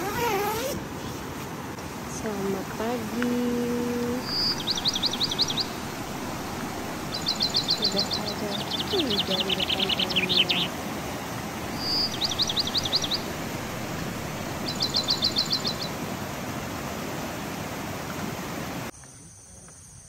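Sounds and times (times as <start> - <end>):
flowing river water: 0.0 - 18.9
songbird singing high notes: 4.0 - 10.8, 11.7 - 16.0.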